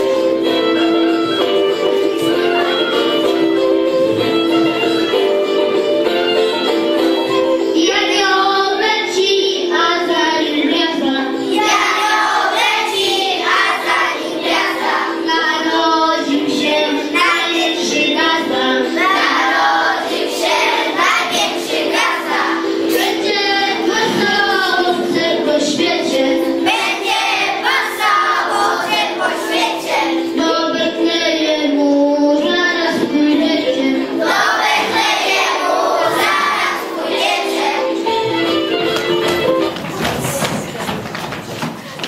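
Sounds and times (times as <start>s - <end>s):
children singing a carol: 7.7s - 38.6s.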